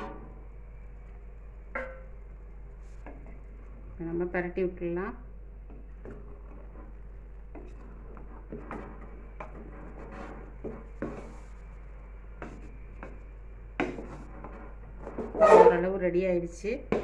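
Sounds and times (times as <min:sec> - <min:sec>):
wooden spatula scraping pot: 0:05.7 - 0:16.0.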